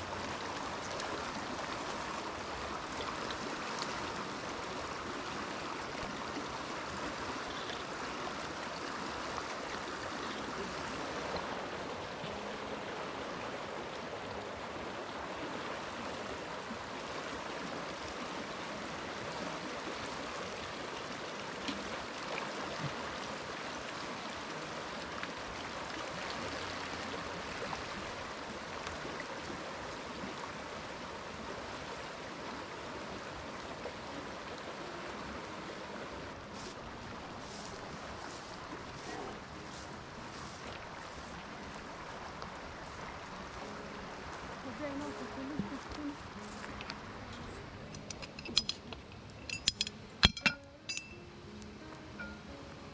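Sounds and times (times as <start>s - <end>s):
river rushing over stones: 0.0s - 52.9s.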